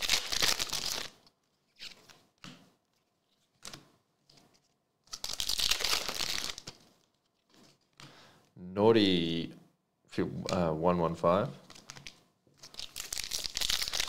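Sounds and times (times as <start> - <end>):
foil wrapper tearing and crinkling: 0.0 - 1.2, 5.1 - 6.8, 11.7 - 14.0
cards being handled: 0.0 - 8.1, 11.6 - 14.0.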